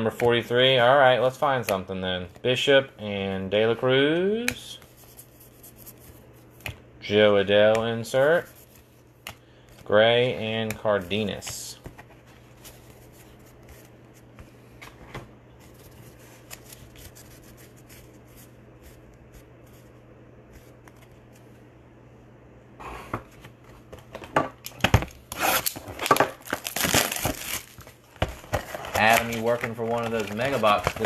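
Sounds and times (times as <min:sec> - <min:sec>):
low steady hum: 0:00.0 - 0:31.0
cardboard box tearing: 0:25.3 - 0:27.7.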